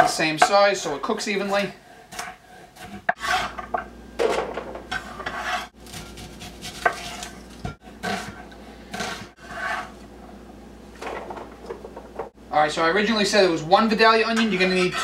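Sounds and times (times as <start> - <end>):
knife cutting on wooden board: 2.1 - 3.6, 5.2 - 7.4, 8.0 - 10.0.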